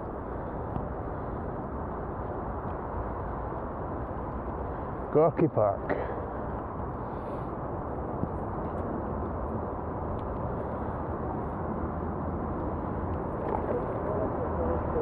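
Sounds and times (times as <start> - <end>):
wind and rolling noise: 0.0 - 15.0.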